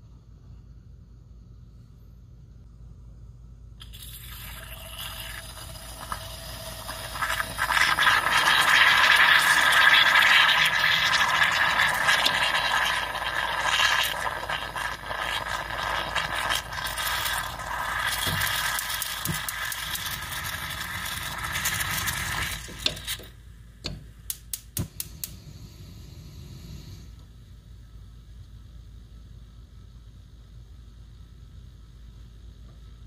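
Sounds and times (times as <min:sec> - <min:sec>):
moka pot hissing and sputtering: 0:03.8 - 0:27.2.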